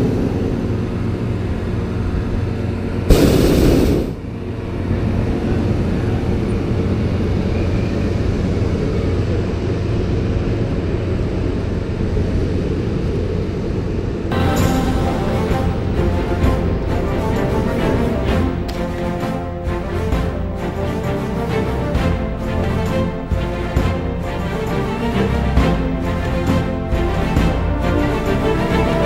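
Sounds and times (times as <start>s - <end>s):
propane burner firing: 3.0s - 4.6s
low rumble: 11.0s - 29.0s.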